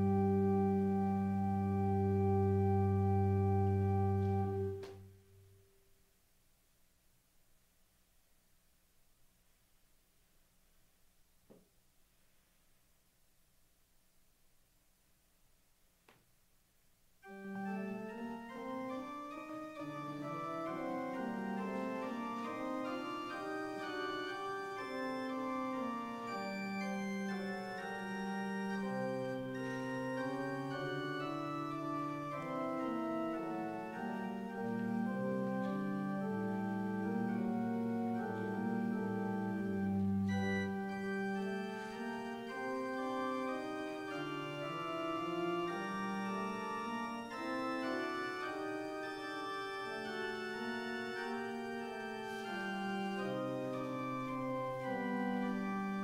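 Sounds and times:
organ music: 0.0s - 5.5s, 17.2s - 56.0s.

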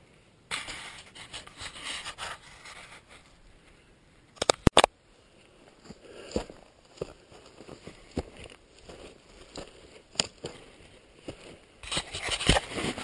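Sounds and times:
dry grass and clothing rustling: 0.0s - 13.0s
sharp loud clicks: 4.4s - 4.9s
footsteps on loose stones: 5.7s - 13.0s.

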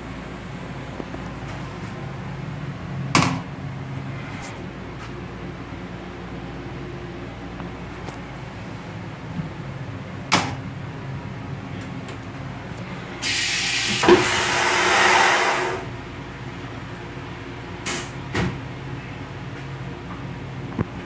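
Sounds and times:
toilet flushing: 13.2s - 15.9s.

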